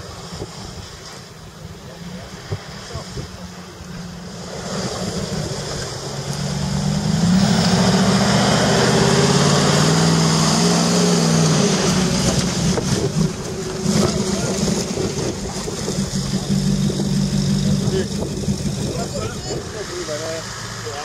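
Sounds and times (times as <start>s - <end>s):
truck engine at low revs: 0.0s - 21.0s.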